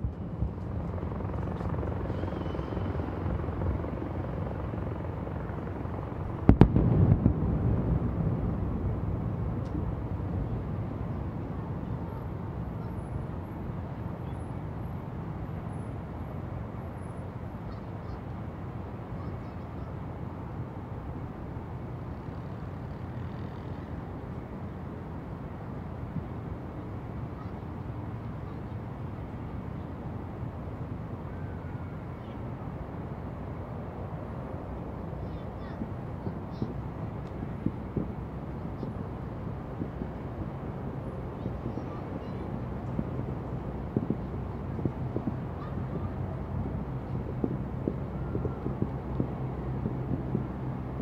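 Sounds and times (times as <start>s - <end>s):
low rumble of city ambience: 0.0s - 51.0s
firework bang: 6.4s - 9.9s.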